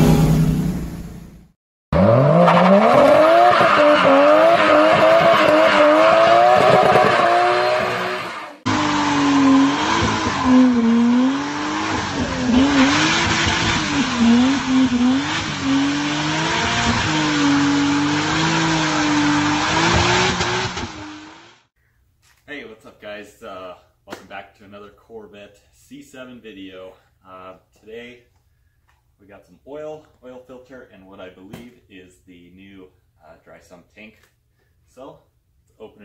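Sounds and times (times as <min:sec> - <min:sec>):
tires squealing: 0:02.0 - 0:21.5
car engines revving hard: 0:02.0 - 0:21.6.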